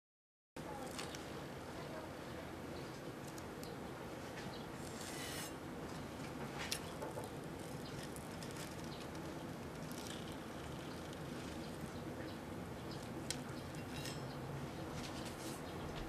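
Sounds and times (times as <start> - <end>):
knife cutting through cereal: 4.8 - 5.6.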